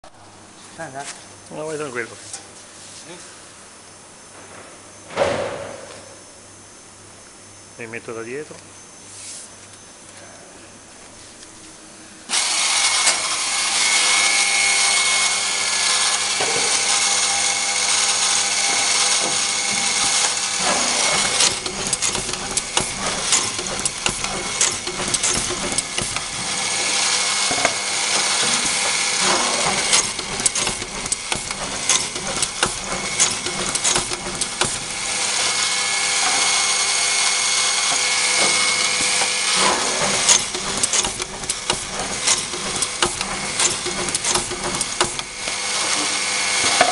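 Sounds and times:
machine motor whine: 12.2s - 46.9s.

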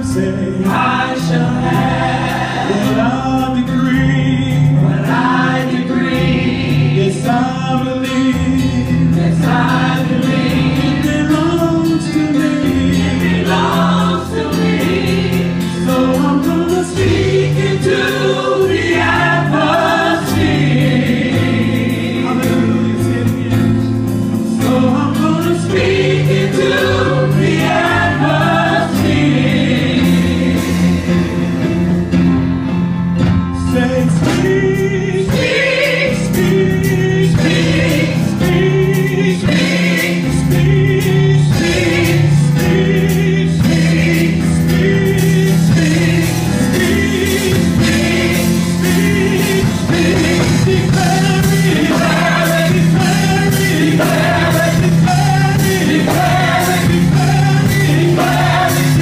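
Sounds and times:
group singing gospel: 0.0s - 32.2s, 33.6s - 59.0s
drums: 0.0s - 59.0s
live band playing: 0.0s - 59.0s.

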